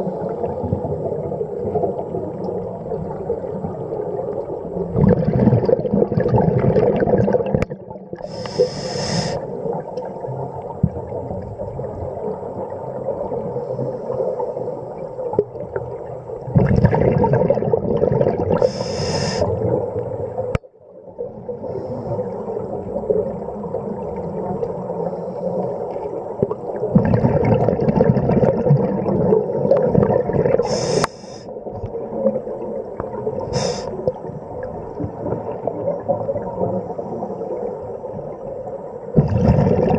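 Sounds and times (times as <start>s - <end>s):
exhaled bubbles rushing: 0.0s - 8.4s, 14.5s - 20.6s, 26.1s - 38.4s, 39.1s - 39.9s
diver breathing through regulator: 8.2s - 9.5s, 18.6s - 19.5s, 30.6s - 31.5s, 33.5s - 34.0s.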